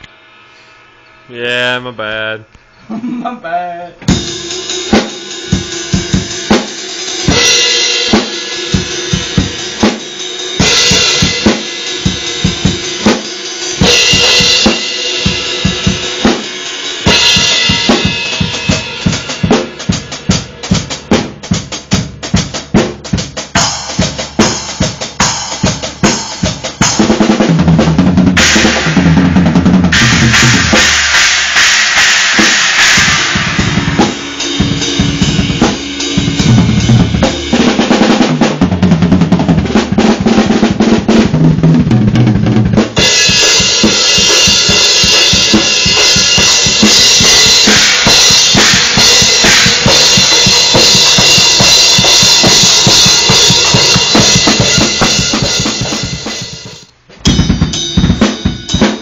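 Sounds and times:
cymbal crashes: 0:28.4 - 0:37.7, 0:43.0 - 0:59.0
kick drum and snare beat: 0:41.2 - 0:59.0.

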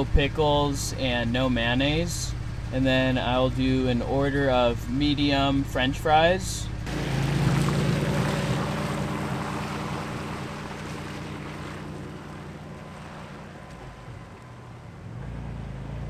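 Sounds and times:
car engine: 0:06.6 - 0:16.0
tyres hissing on wet pavement: 0:06.9 - 0:14.1.

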